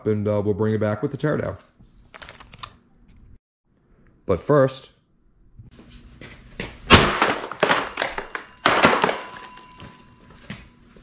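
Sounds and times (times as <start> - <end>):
hammer smashing plastic: 6.9 - 9.9
clattering plastic: 7.1 - 9.8.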